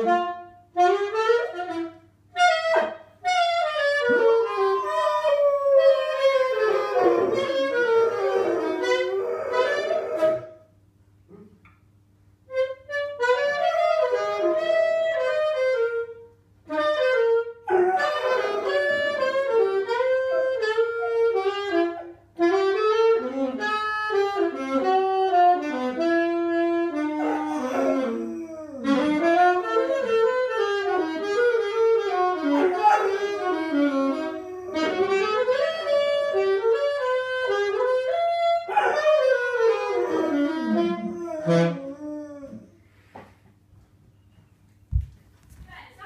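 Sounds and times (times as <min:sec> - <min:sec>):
saxophone playing slow melody: 0:00.0 - 0:10.6, 0:12.5 - 0:42.7
dog howling: 0:04.1 - 0:10.6, 0:17.7 - 0:22.1, 0:27.2 - 0:30.4, 0:32.4 - 0:36.0, 0:38.7 - 0:42.8.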